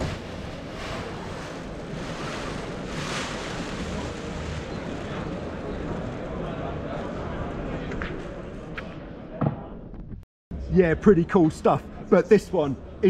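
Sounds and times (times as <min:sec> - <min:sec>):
rustling rush: 0:00.0 - 0:06.2
hall ventilation: 0:00.0 - 0:07.1
crowd hubbub: 0:00.0 - 0:09.6.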